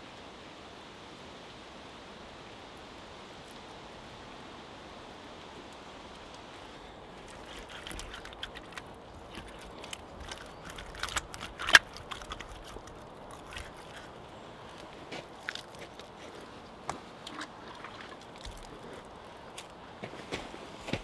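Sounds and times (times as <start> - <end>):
steady hiss: 0.0 - 7.5
hands working wet clay: 7.2 - 21.0.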